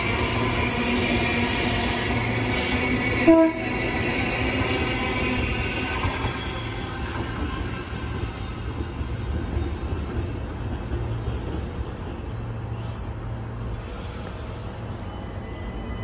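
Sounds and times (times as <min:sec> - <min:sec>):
electric train rumbling on rails: 0:00.0 - 0:16.0
brief hisses: 0:12.8 - 0:14.9.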